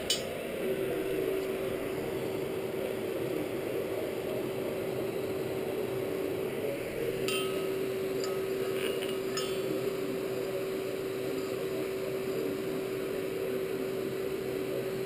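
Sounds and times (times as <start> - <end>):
steel bar clinking: 0.0 - 0.3, 7.3 - 8.4, 9.0 - 9.7
forge blower humming: 0.0 - 15.0.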